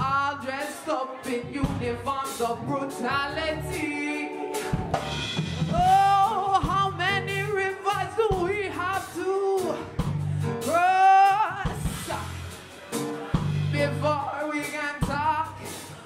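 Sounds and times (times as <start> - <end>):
electric bass: 0.0 - 0.6, 1.4 - 16.0
drum kit hits: 4.5 - 16.0
woman singing: 5.7 - 9.8.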